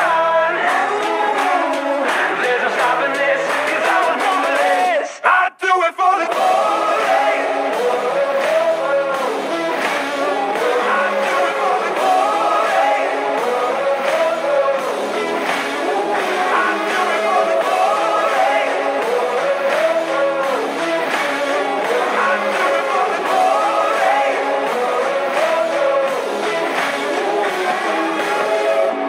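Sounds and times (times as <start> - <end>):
pop-rock song with singing: 0.0 - 29.0.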